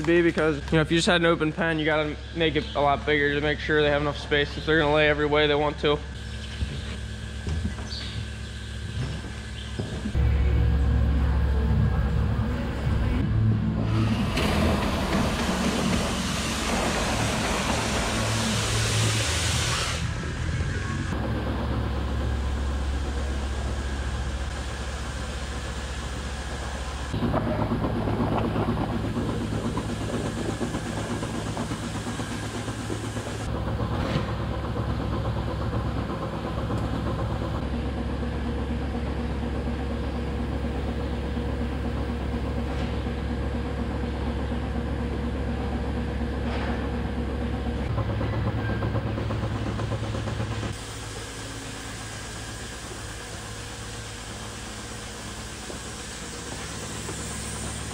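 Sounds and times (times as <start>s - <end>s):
milking machinery hum and hiss: 0.0s - 57.9s.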